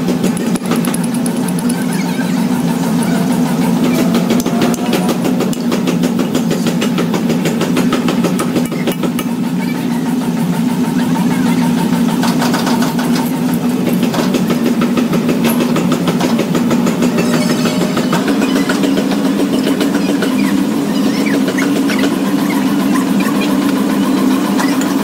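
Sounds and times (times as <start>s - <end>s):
fast regular clatter: 0.0s - 2.8s, 11.8s - 25.0s
engine running: 0.0s - 25.0s.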